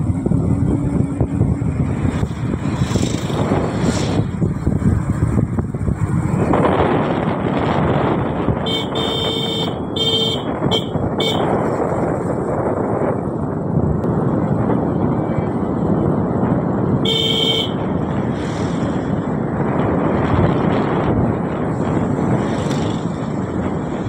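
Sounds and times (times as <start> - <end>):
wind rushing over microphone: 0.0 - 24.0
vehicle horn honking: 8.6 - 11.5, 17.0 - 17.8.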